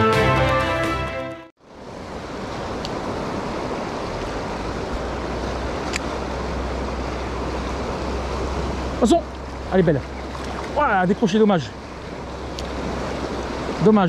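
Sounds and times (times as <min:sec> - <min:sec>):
fast-flowing river rushing: 0:01.6 - 0:14.0
wind rumble on microphone: 0:01.7 - 0:10.9.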